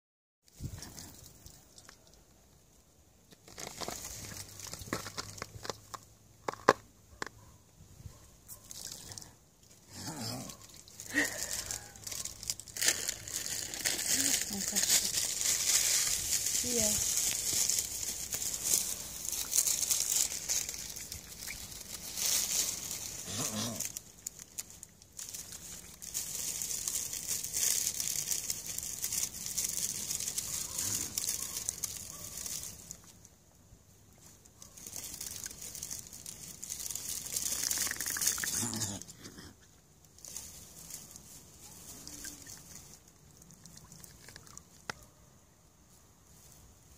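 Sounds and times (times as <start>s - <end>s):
swans dabbling in water: 10.6s - 12.1s, 17.8s - 23.2s, 34.9s - 38.6s, 41.9s - 44.9s.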